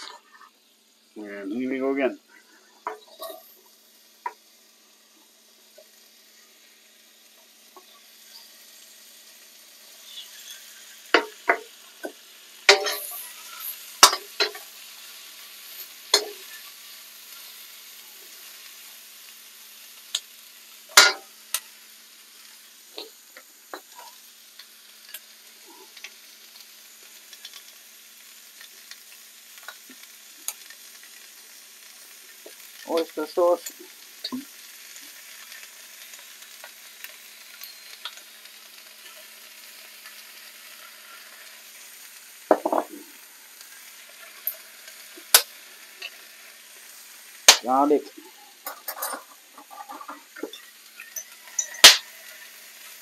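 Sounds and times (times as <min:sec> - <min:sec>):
vegetables sizzling in a wok: 0:00.0 - 0:53.0
metal ladle scraping a wok: 0:02.9 - 0:03.5, 0:12.7 - 0:14.6, 0:48.6 - 0:52.5.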